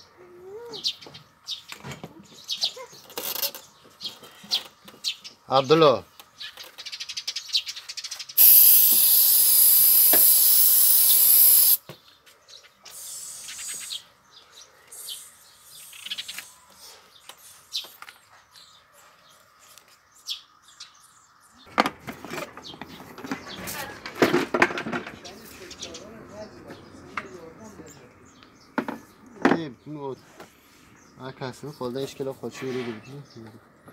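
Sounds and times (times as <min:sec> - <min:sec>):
aerosol spray hiss: 0:08.4 - 0:11.8, 0:12.9 - 0:14.0.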